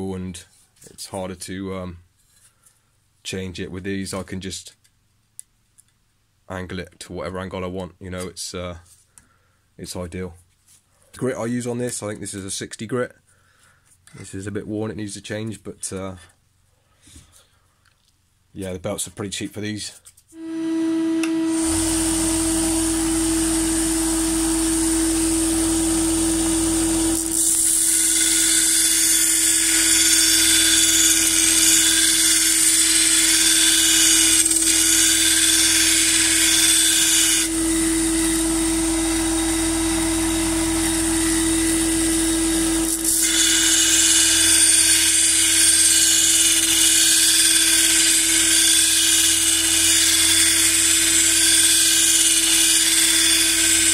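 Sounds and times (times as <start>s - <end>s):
belt sander motor humming: 20.4s - 53.9s
sander grinding steel: 20.4s - 53.9s.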